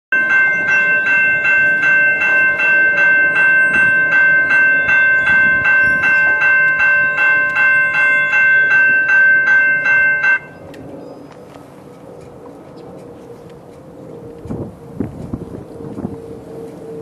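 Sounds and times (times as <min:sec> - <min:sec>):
railroad crossing bell ringing: 0:00.1 - 0:10.8.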